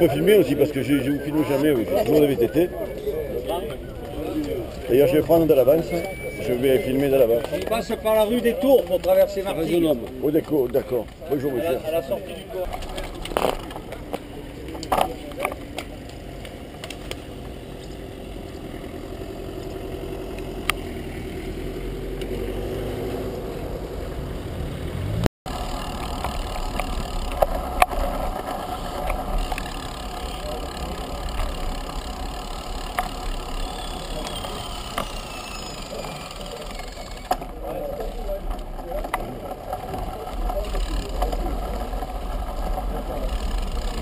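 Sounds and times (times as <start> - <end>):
wind and road noise: 0.0 - 44.0
bicycle clicks and knocks: 12.7 - 17.6, 25.5 - 44.0.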